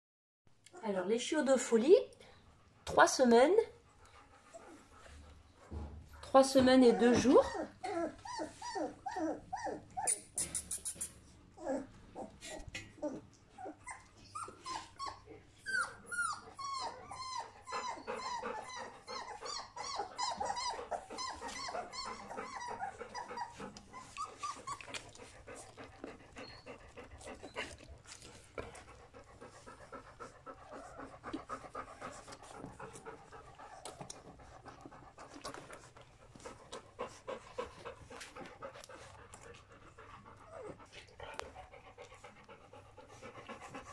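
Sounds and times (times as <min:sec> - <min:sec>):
dog panting: 0:02.6 - 0:11.0, 0:11.6 - 0:43.9
puppies squeaking and grunting: 0:06.4 - 0:42.3
puppies whining and squealing: 0:06.6 - 0:39.5, 0:40.2 - 0:41.5.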